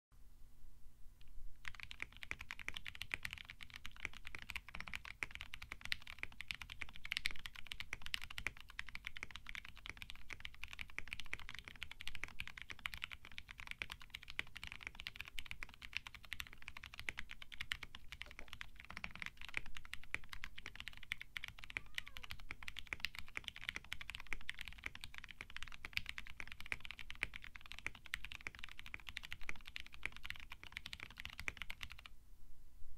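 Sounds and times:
fast mechanical keyboard typing: 1.6 - 32.1.

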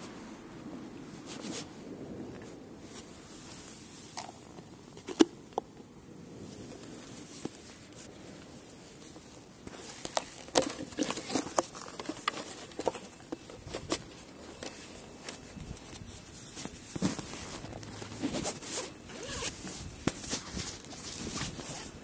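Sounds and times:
phone handling clicks and rustling: 9.7 - 21.7.

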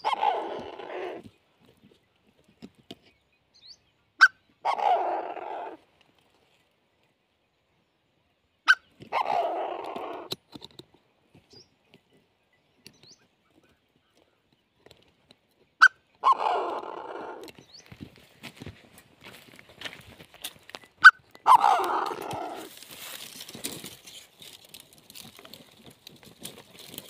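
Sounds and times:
bird giving harsh call: 21.0 - 22.8.

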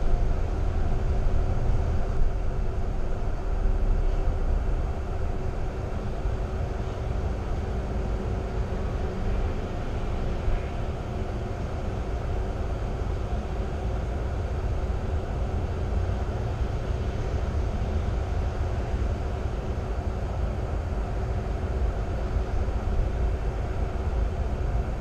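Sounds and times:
bus engine and road rumble: 0.0 - 25.0
faint steady hum: 0.0 - 25.0.

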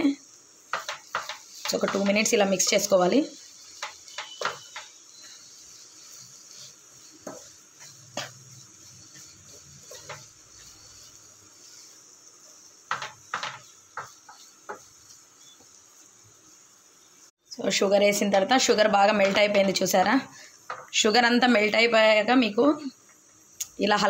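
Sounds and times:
faint steady hiss: 0.0 - 24.0
spatula scraping in a pan: 0.6 - 16.7
spatula knocking against pan: 0.7 - 2.3, 3.8 - 5.0, 12.9 - 14.9.

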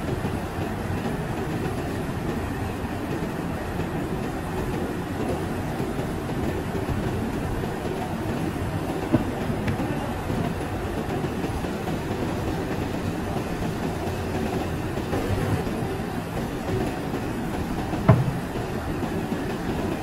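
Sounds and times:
factory machinery rumbling: 2.3 - 20.0
sharp knock: 18.1 - 18.5.

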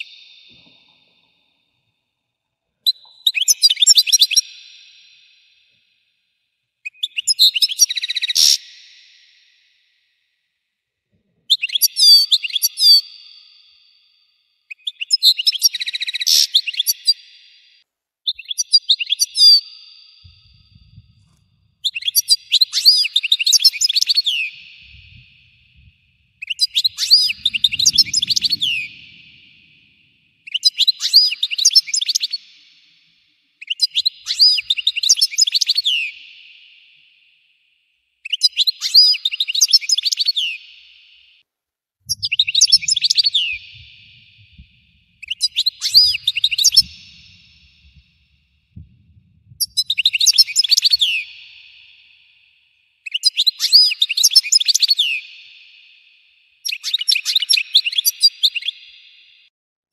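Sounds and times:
goldfinch singing: 21.8 - 32.5, 42.1 - 48.1, 49.6 - 51.8, 56.6 - 59.0.

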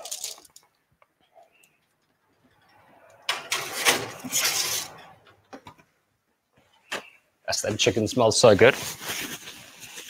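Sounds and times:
baking tray scraping onto rack: 3.3 - 5.1.

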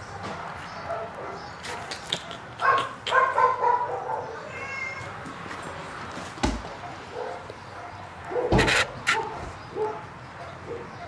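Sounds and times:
cat meowing: 4.4 - 5.2.

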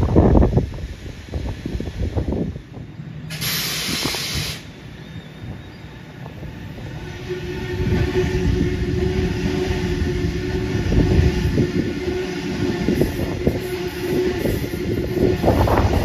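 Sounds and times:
train motor whine: 0.0 - 16.0
train wheels rumbling on rail: 0.0 - 16.0
wind buffeting microphone: 0.0 - 16.0
sharp hiss: 3.2 - 5.0.

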